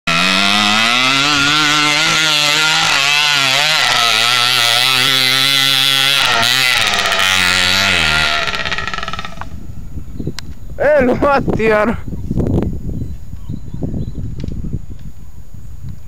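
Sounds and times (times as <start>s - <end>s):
motorcycle engine revving: 0.0s - 9.7s.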